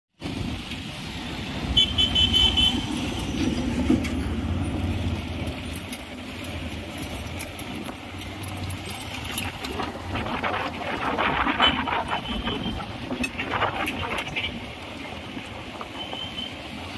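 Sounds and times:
road traffic engines rumbling: 0:00.1 - 0:16.9
vehicle horn short toots: 0:01.8 - 0:02.9.

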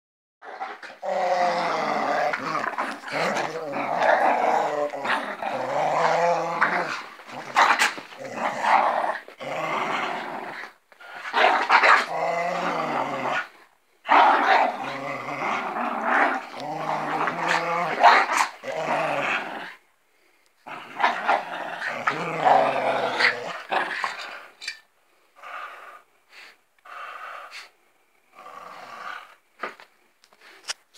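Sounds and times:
dogs growling in play: 0:00.4 - 0:19.8, 0:20.6 - 0:29.7.

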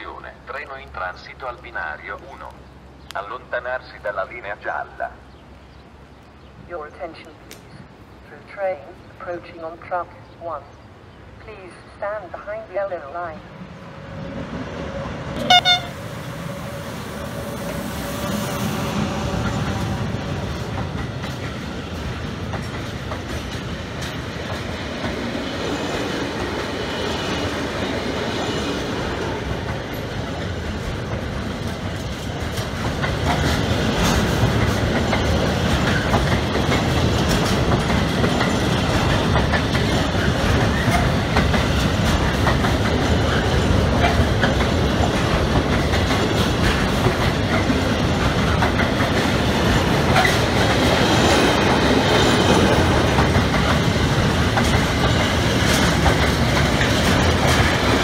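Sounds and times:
freight train wheels clicking on rails: 0:15.4 - 0:58.0.

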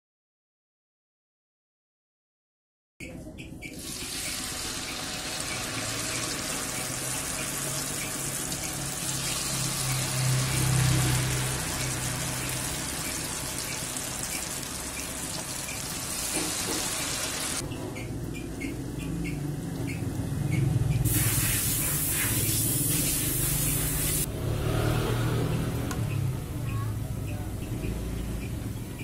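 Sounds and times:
batter sizzling in hot oil: 0:03.8 - 0:17.6, 0:21.1 - 0:24.3.

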